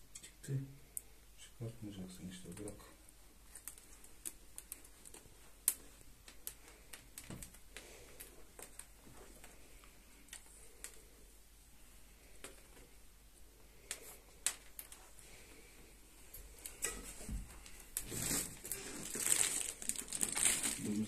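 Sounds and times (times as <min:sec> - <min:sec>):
plastic rustling and crinkling: 0:02.2 - 0:11.1, 0:16.2 - 0:21.0.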